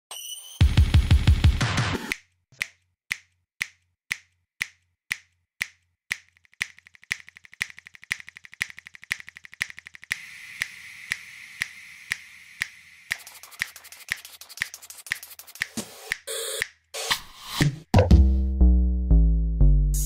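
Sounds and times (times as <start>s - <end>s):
sharp evenly spaced clicks: 2.1s - 16.8s
faint rapid ticks: 6.1s - 15.7s.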